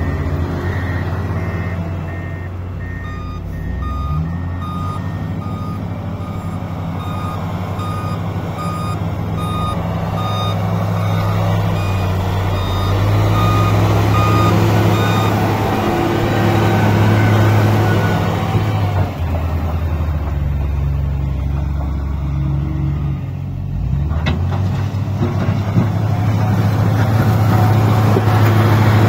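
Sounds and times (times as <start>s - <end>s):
reversing alarm beeping: 0.0s - 18.4s
diesel engine running: 0.0s - 29.0s.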